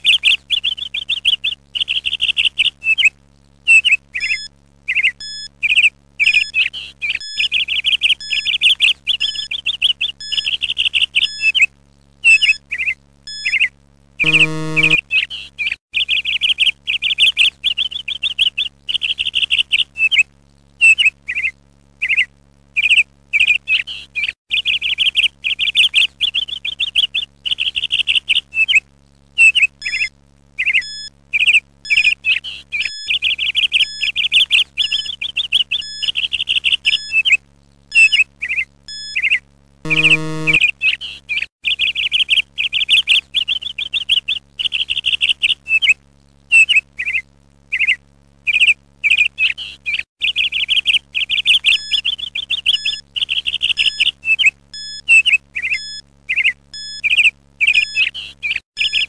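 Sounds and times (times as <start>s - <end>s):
short low buzzer tone: 14.2s - 15.0s, 39.9s - 40.7s
songbirds chirping and trilling: 46.6s - 59.0s.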